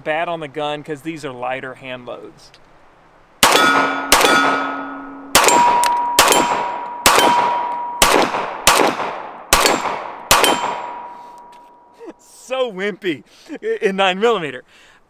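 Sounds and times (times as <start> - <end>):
steel target ringing: 3.4 - 8.9, 9.5 - 12.0
pistol shots: 3.4 - 11.3.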